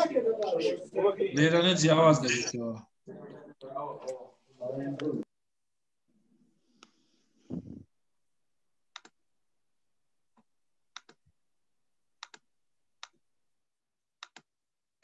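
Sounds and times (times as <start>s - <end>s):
computer mouse clicks: 8.9s - 9.2s, 10.9s - 11.2s, 12.2s - 12.4s, 14.2s - 14.5s.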